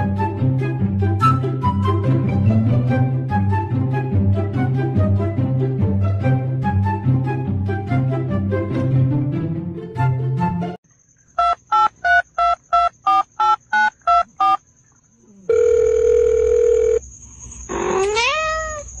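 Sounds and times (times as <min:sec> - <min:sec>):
background music: 0:00.0 - 0:10.8
steady telephone tone: 0:11.4 - 0:14.6, 0:15.5 - 0:17.0
telephone keypad beeps: 0:11.4 - 0:14.6.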